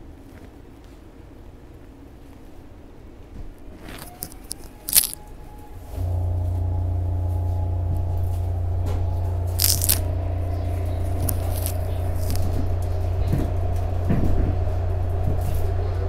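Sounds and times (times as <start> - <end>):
train running drone: 4.1 - 16.0
steady tones: 4.5 - 16.0
high rattle: 6.0 - 16.0.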